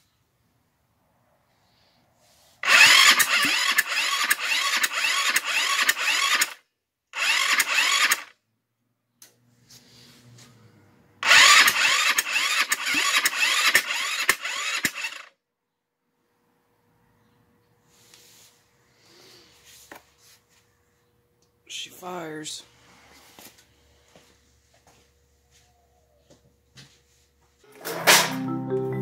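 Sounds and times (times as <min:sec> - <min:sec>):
scooter engine cranking with starter: 0:02.6 - 0:06.6, 0:07.2 - 0:08.3, 0:11.2 - 0:15.3.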